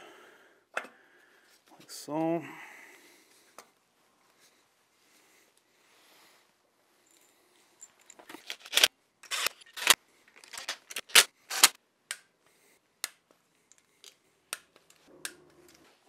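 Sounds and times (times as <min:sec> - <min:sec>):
metallic clicks of tools: 0:07.8 - 0:12.3.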